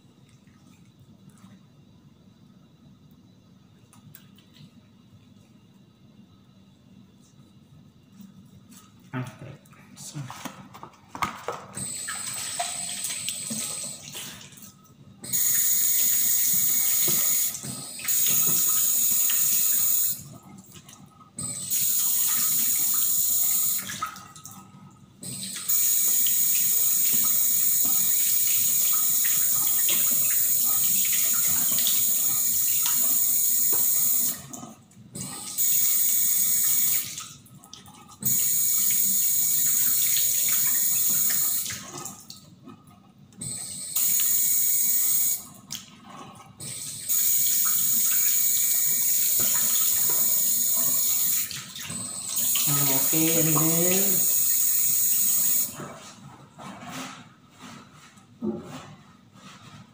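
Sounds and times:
tap water running into a sink: 11.2 - 24.6, 25.2 - 34.6, 35.2 - 42.5, 43.4 - 45.9, 46.6 - 55.8.

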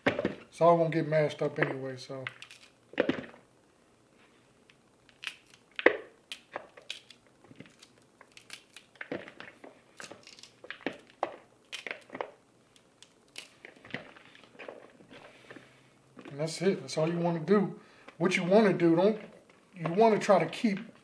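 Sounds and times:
cauliflower snapping: 5.1 - 12.4, 13.0 - 14.8.

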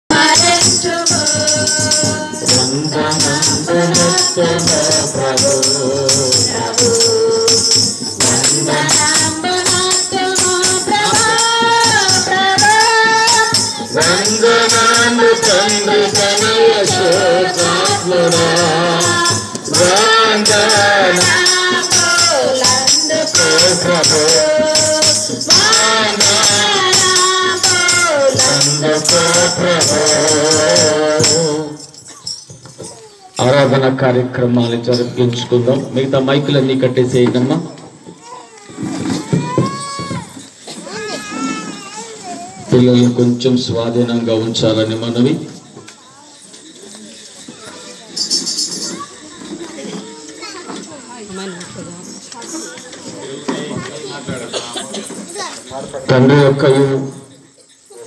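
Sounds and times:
tambourines jingling: 0.0 - 58.0
women singing together: 0.1 - 32.4.

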